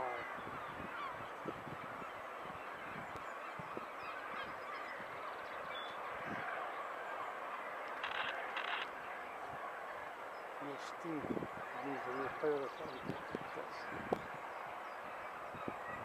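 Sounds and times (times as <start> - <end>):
birds calling: 0.0 - 16.0
steady background hiss: 3.2 - 16.0.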